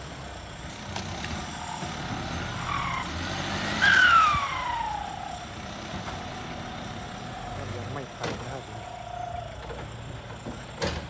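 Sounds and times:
tractor diesel engine under load: 0.0 - 11.0
loud squeal falling in pitch: 2.4 - 5.5.

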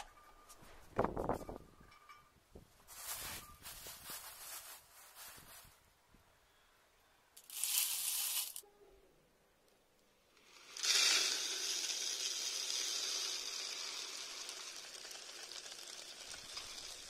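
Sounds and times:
dry feed pouring into plastic bowl: 7.4 - 8.6, 10.5 - 17.0.

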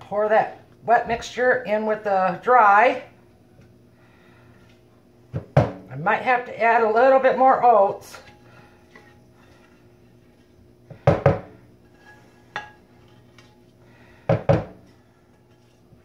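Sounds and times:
spatula scraping saucepan: 7.8 - 10.7, 11.6 - 13.7, 15.0 - 16.0.

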